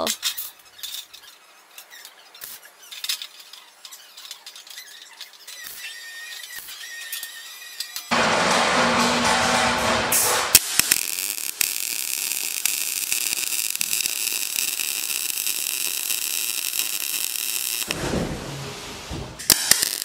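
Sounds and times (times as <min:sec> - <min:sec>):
loud broad noise: 0:08.1 - 0:11.3
welding arc crackling: 0:08.1 - 0:18.0, 0:19.4 - 0:20.0.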